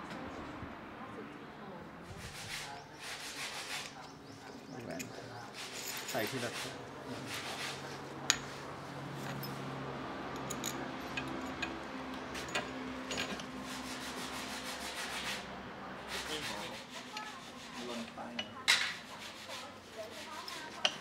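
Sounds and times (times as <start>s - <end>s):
rubbing and scraping: 2.1s - 4.0s, 5.5s - 8.0s, 16.1s - 21.0s.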